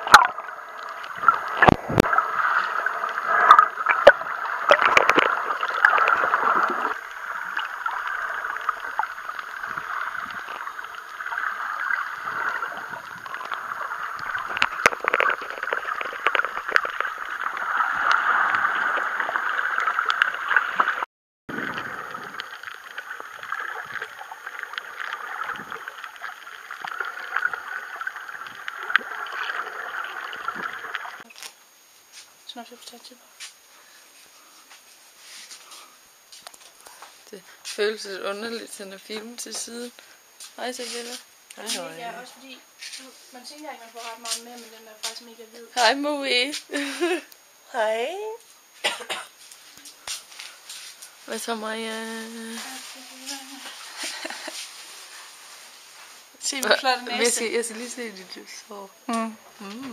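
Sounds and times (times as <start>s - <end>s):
underwater gurgling hiss: 0.0s - 21.0s
underwater clicks and knocks: 1.2s - 2.2s, 3.4s - 6.8s, 14.2s - 18.6s.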